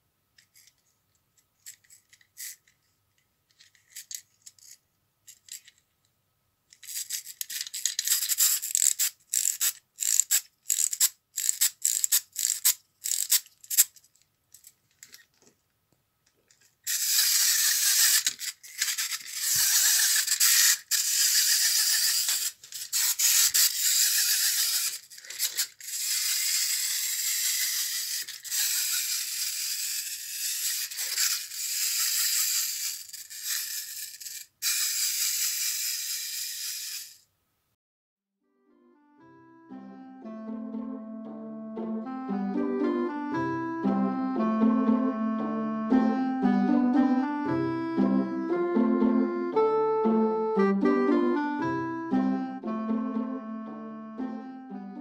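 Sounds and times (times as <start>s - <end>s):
clockwork toy whirring rattle: 1.6s - 2.7s, 3.6s - 5.7s, 6.7s - 14.1s, 16.8s - 37.3s
winding key ratchet clicks: 6.8s - 14.0s, 16.9s - 37.2s.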